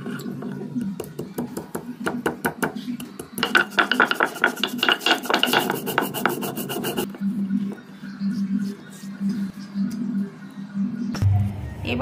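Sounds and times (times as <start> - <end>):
stone grinding on stone: 3.4 - 7.1.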